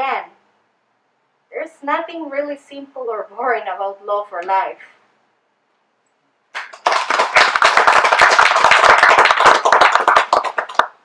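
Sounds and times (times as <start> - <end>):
audience applause: 6.6 - 11.0.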